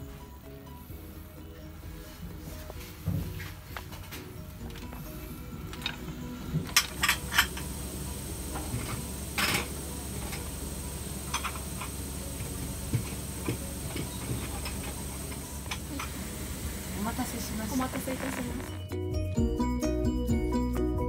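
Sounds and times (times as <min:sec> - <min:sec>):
hissing burst: 0:06.9 - 0:18.8.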